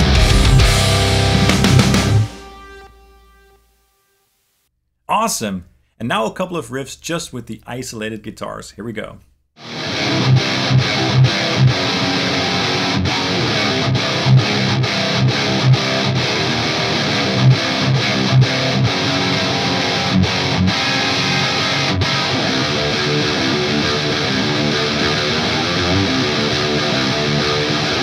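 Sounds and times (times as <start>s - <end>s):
distorted electric guitar riffs: 0.0s - 3.8s, 9.6s - 28.0s.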